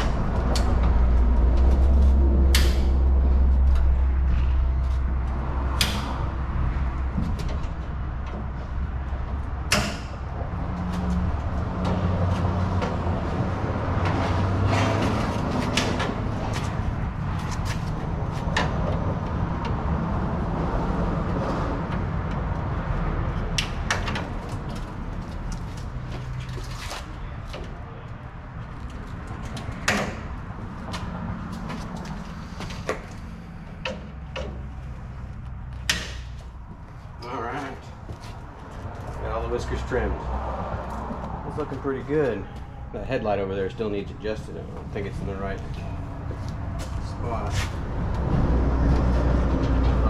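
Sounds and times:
low hum: 0:00.0 - 0:26.6.

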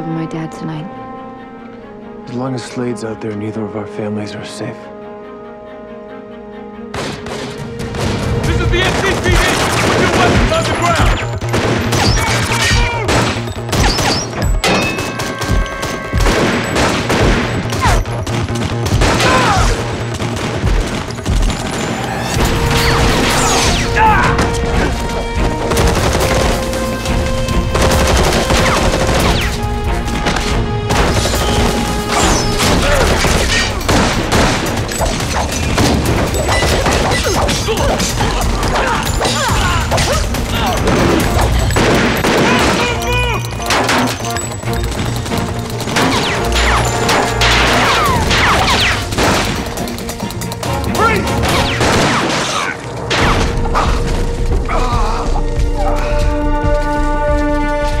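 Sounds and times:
dramatic music score: 0:00.0 - 0:58.0
gunfire and hits: 0:06.9 - 0:10.8, 0:11.5 - 0:12.5, 0:13.1 - 0:21.8, 0:30.2 - 0:38.0, 0:40.8 - 0:42.9, 0:45.9 - 0:49.8, 0:51.4 - 0:53.9.

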